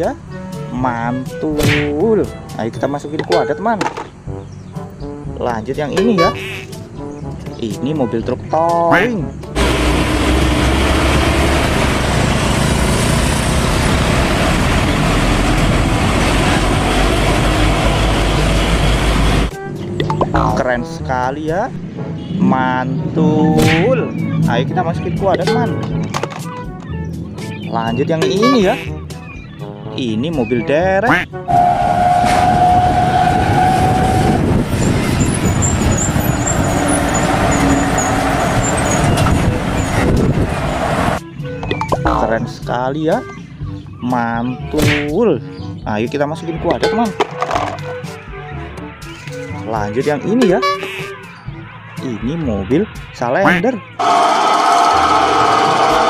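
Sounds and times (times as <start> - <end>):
road noise: 0.0 - 44.7, 45.4 - 56.0
truck engine rumble: 9.3 - 27.8, 31.4 - 41.2, 54.0 - 56.0
steady high tone: 54.0 - 56.0.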